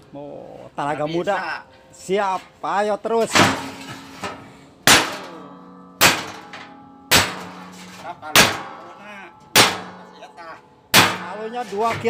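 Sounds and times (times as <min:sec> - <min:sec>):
metal drum ringing: 0:03.2 - 0:12.0
hammer striking chisel on metal: 0:04.8 - 0:10.2, 0:10.9 - 0:12.0.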